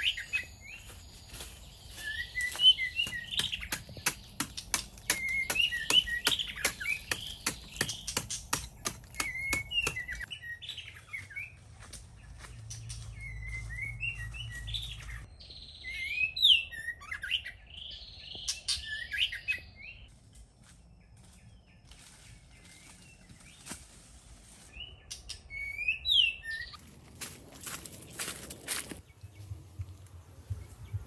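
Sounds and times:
songbirds chirping: 0.0 - 31.0
hand tool striking earth: 2.8 - 10.3.

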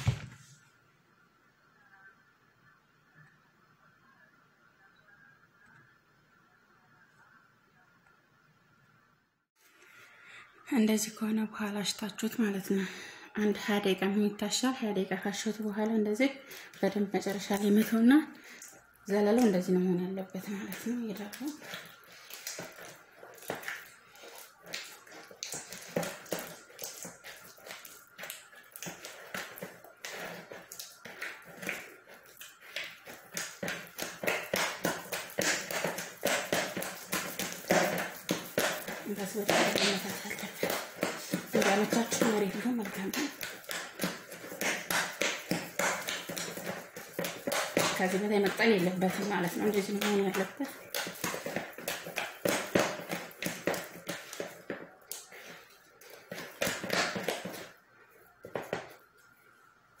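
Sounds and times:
dough being kneaded and slapped: 0.0 - 0.5, 20.5 - 57.8.

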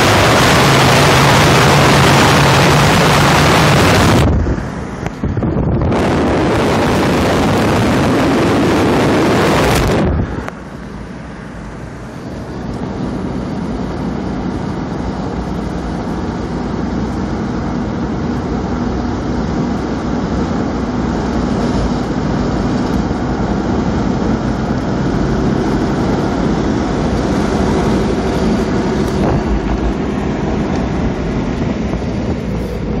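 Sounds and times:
wind buffeting microphone: 0.0 - 10.6, 24.0 - 33.0
car engine cruising: 0.0 - 33.0
wind and tyre noise: 0.0 - 33.0.

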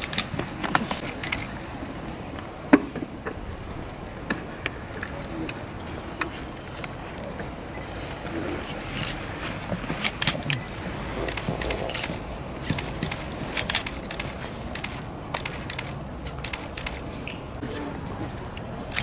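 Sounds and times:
low outdoor rumble: 0.0 - 19.0
camera shutters clicking: 11.2 - 17.3.

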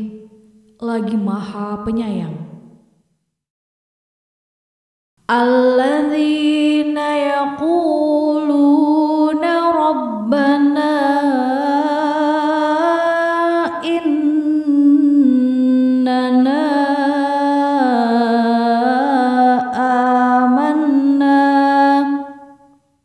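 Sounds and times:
person chanting melodic recitation: 5.3 - 22.4.

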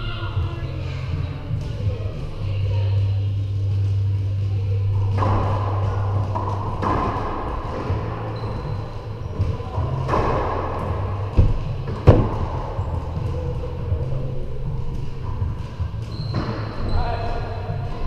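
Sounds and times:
low hum: 0.0 - 18.0
racquetball hits and wall slaps: 4.9 - 8.6, 9.3 - 13.6.

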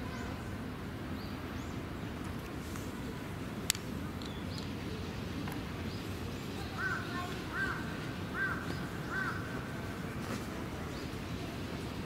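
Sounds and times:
bird calling: 6.6 - 9.8.

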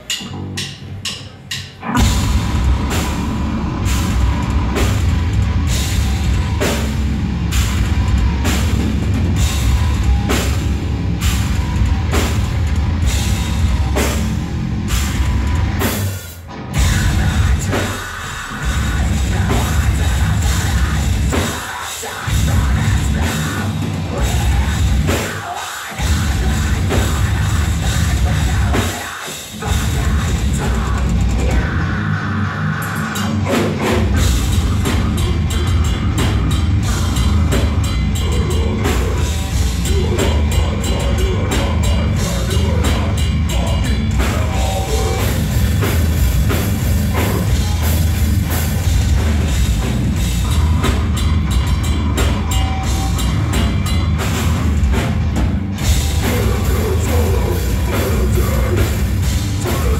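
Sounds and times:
metal band playing live: 0.0 - 59.9.

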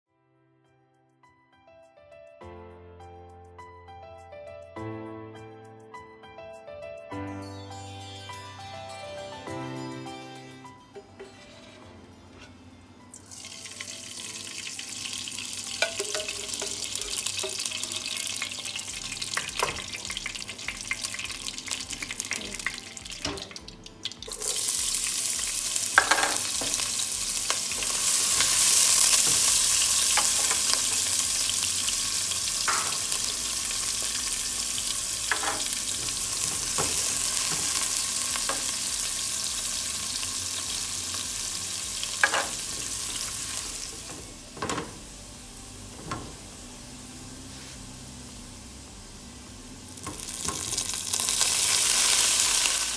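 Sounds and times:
onion frying sizzle: 13.1 - 52.9
spatula knocking against pot: 15.8 - 17.7.

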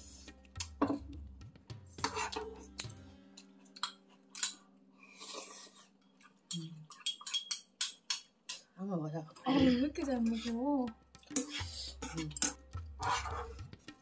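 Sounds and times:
spoon and chopsticks clinking on pan: 3.8 - 4.7, 6.5 - 8.7, 11.3 - 13.4.

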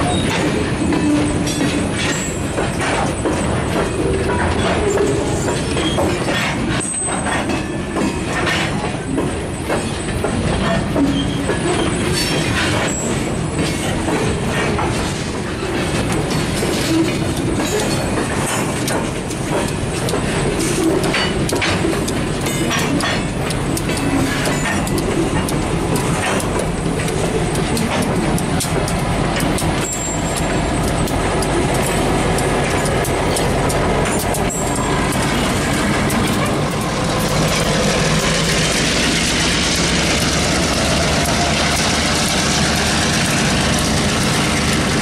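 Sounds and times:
diesel locomotive engines: 0.0 - 45.0
train wheels clicking over rail joints: 0.0 - 45.0.

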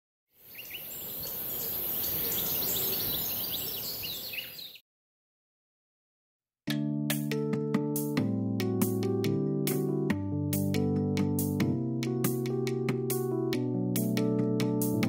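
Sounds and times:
birds chirping: 0.4 - 4.8
keyboard music: 6.7 - 15.0.

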